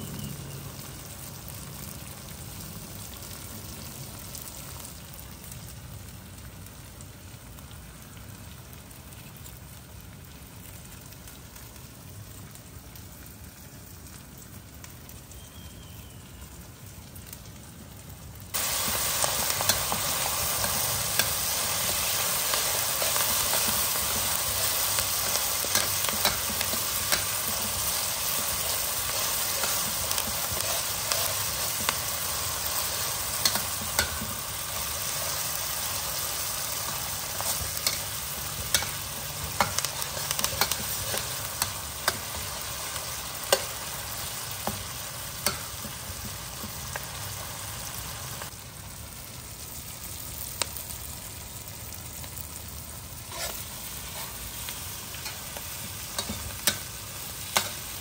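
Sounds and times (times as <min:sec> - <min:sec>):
curry frying in oil: 0:00.0 - 0:58.0
metal spatula scraping wok: 0:18.6 - 0:44.0, 0:53.2 - 0:58.0.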